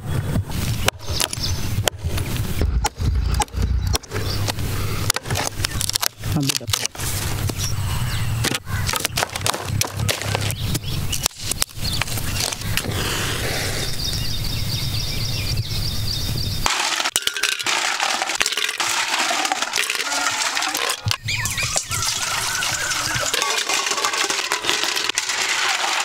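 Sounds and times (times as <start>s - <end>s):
snail shells clattering in metal pot: 16.7s - 26.0s.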